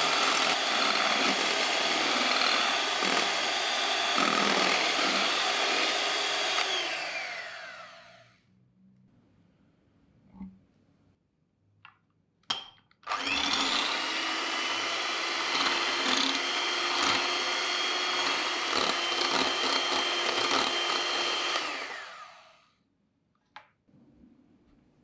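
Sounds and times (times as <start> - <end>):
hand mixer motor whine: 0.0 - 8.4, 13.1 - 22.7.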